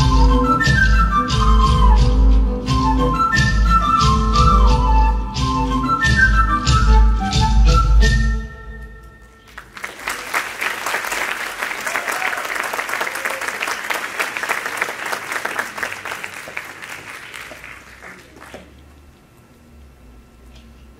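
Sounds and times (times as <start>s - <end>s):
music: 0.0s - 9.6s
audience applauding: 9.4s - 18.8s.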